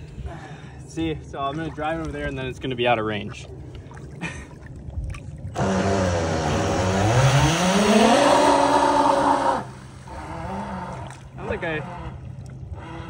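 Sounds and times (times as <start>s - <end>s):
electric motor whine: 5.6s - 11.0s.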